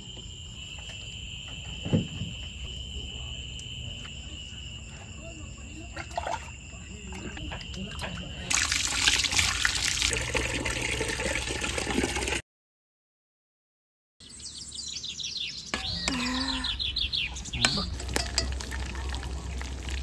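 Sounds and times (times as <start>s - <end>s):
whistled calls: 14.2s - 17.9s.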